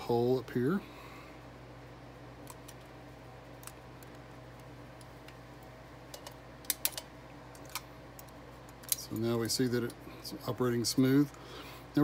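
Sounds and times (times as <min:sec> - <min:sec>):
faint steady hum: 0:00.0 - 0:12.0
small metal clicks: 0:06.1 - 0:10.0.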